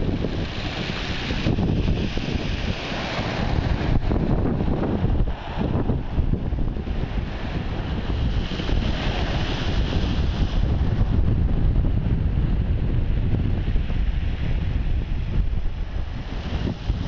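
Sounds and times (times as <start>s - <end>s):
waves breaking on shingle beach: 0.0s - 11.2s
wind buffeting microphone: 0.0s - 17.0s.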